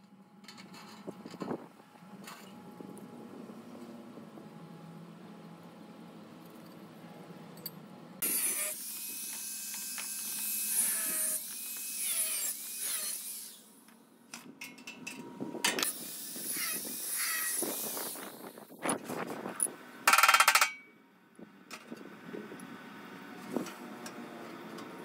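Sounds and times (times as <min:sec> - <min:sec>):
angle grinder cutting steel: 0:08.2 - 0:13.8, 0:15.8 - 0:18.5.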